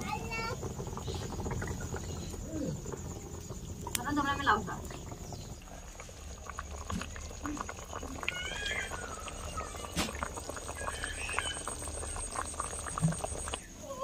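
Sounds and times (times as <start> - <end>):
curry simmering with bubbles popping: 0.0 - 14.0
animal calling: 8.0 - 13.6.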